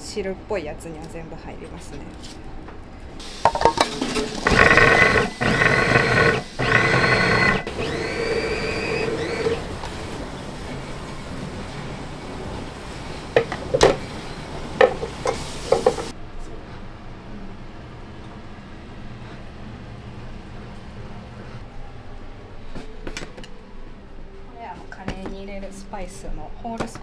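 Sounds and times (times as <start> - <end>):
food processor motor: 4.2 - 10.3.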